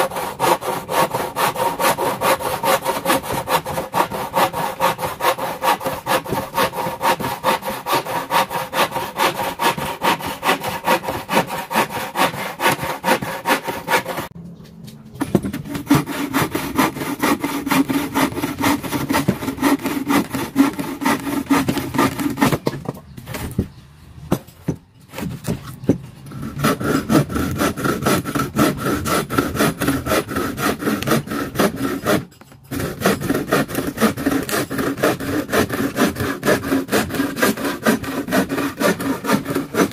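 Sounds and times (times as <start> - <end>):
frame saw cutting wood: 0.0 - 14.4, 15.2 - 23.6, 25.1 - 39.9.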